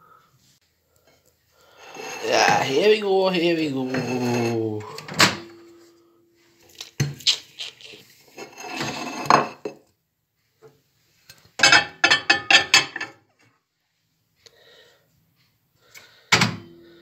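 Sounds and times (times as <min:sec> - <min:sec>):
ceramic plate scraping and clinking: 0:01.8 - 0:05.7, 0:08.2 - 0:09.8, 0:11.6 - 0:13.2.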